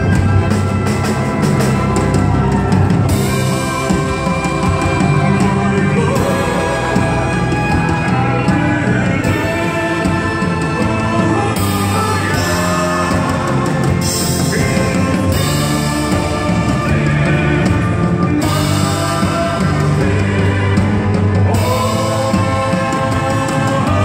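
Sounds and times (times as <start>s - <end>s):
drum kit: 0.0s - 24.0s
electric guitar: 0.0s - 24.0s
person singing long notes: 0.0s - 24.0s.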